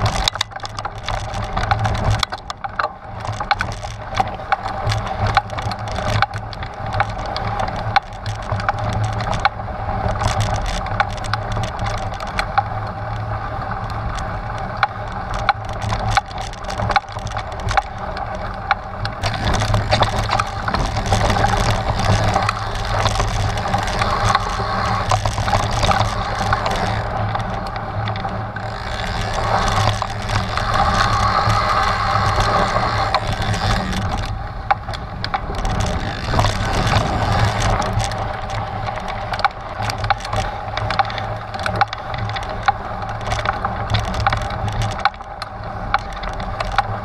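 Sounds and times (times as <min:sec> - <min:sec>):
bike rattling: 0:00.0 - 0:47.0
tyres crunching over gravel: 0:13.8 - 0:47.0.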